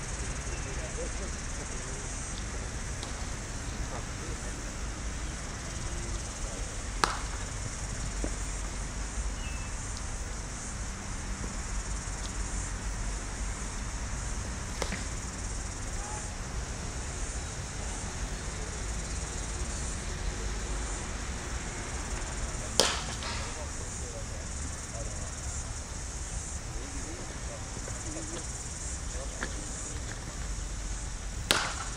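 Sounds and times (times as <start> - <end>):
steady outdoor hiss: 0.0 - 31.9
cricket bat striking ball: 7.0 - 7.5, 14.7 - 15.3, 22.7 - 23.7, 31.4 - 31.9.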